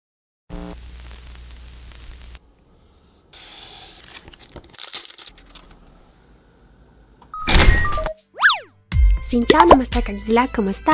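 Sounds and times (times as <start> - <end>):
packaging rustling and tearing: 3.9 - 5.8.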